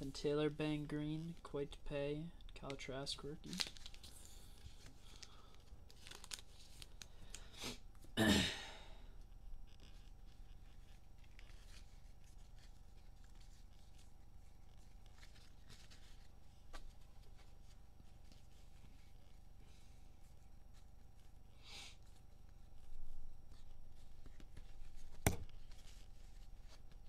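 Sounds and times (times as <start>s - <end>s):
plastic wrapper ripping: 3.4s - 7.5s.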